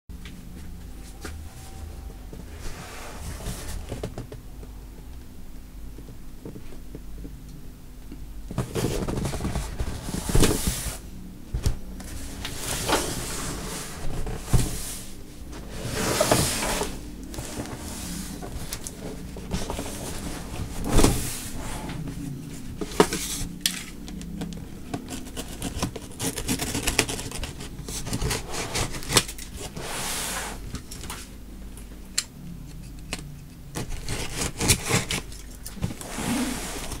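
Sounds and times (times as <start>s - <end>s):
cardboard rubbing and scraping: 0.9s - 4.4s, 8.5s - 11.0s, 12.0s - 30.7s, 33.7s - 37.0s.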